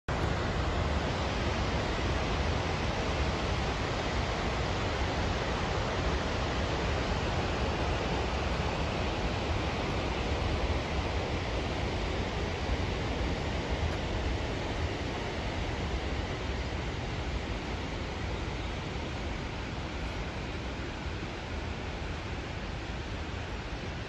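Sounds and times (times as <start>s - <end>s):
rushing floodwater: 0.1s - 24.0s.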